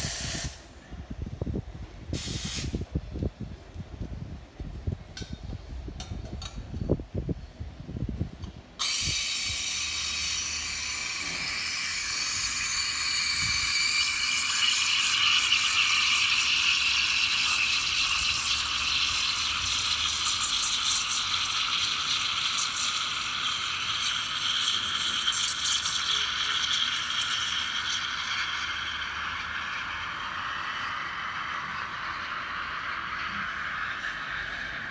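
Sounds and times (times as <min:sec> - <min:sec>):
steam wand hissing: 0:00.0 - 0:00.6, 0:02.2 - 0:02.8, 0:08.8 - 0:34.9.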